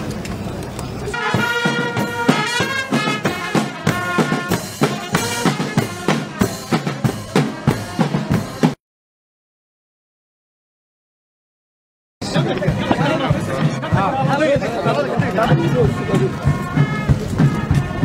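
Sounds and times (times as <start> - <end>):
people talking outdoors: 0.0 - 8.8, 12.2 - 18.0
music with drum beat and melody: 1.1 - 8.8, 12.2 - 18.0.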